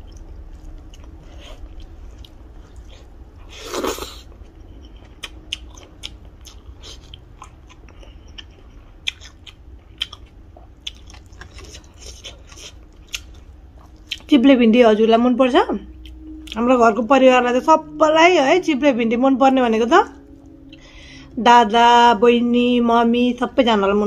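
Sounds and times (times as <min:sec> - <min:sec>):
person chewing food: 0:00.0 - 0:14.3.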